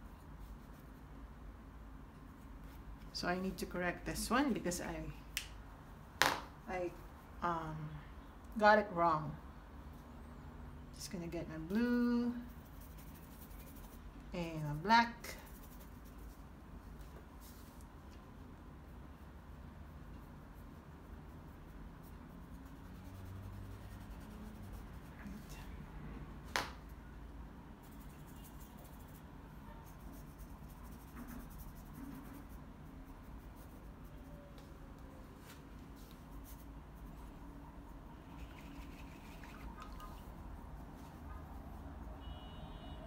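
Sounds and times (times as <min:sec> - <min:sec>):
paintbrush scratching on canvas: 0:00.0 - 0:01.1, 0:11.8 - 0:16.5, 0:20.1 - 0:25.7, 0:27.8 - 0:34.3, 0:36.0 - 0:37.4, 0:38.2 - 0:42.1
low room hum: 0:00.0 - 0:43.0.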